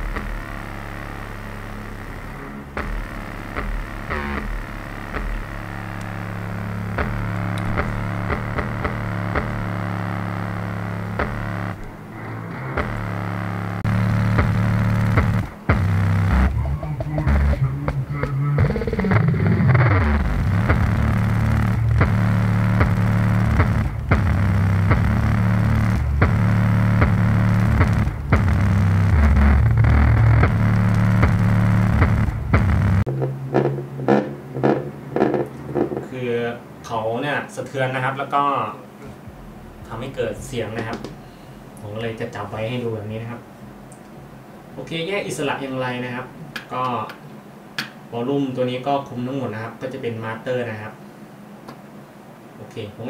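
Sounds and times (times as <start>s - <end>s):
sharp clicks: 0.0s - 12.0s, 12.8s - 17.6s, 18.2s - 33.7s
subwoofer playing low bass notes: 0.0s - 36.1s, 39.1s - 44.4s.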